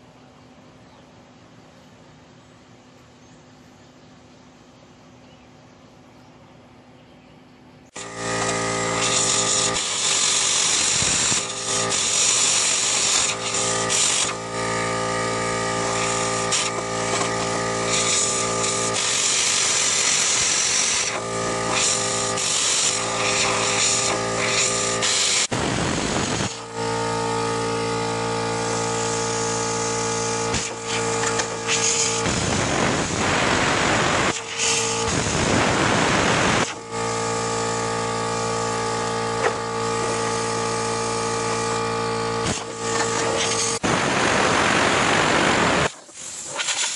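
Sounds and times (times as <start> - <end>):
plasma cutter hissing: 8.0 - 26.6, 28.4 - 46.9.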